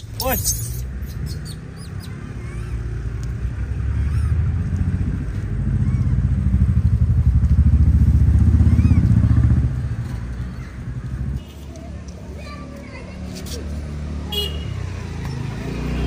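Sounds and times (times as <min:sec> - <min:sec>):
vehicle engine pulsing: 0:00.0 - 0:11.4.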